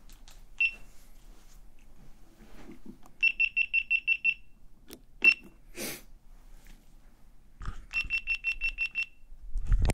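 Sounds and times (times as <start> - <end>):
camera beeping: 7.9 - 9.1.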